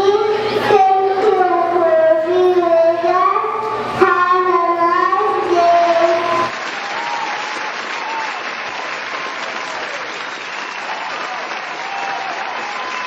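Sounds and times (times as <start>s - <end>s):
child singing into microphone: 0.0s - 6.5s
audience applause: 6.5s - 13.0s.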